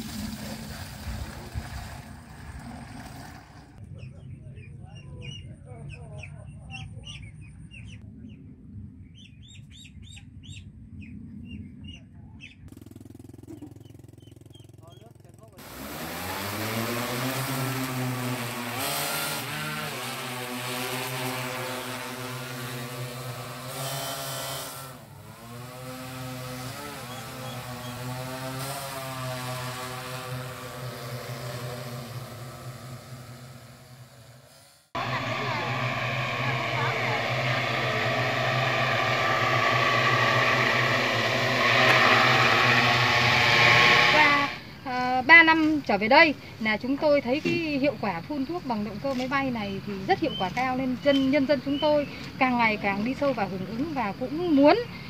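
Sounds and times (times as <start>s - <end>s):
steady low rumble: 3.7s - 12.8s, 35.0s - 44.8s
small birds chirping: 3.8s - 12.7s, 13.5s - 15.5s, 49.3s - 55.0s
drone propellers humming: 12.7s - 45.0s
steady hum: 30.1s - 44.9s.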